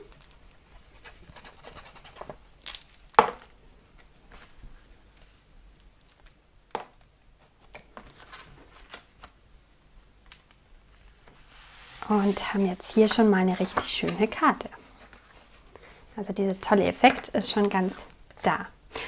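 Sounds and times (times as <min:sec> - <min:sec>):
paper rustling: 0:07.4 - 0:09.4, 0:10.9 - 0:16.0.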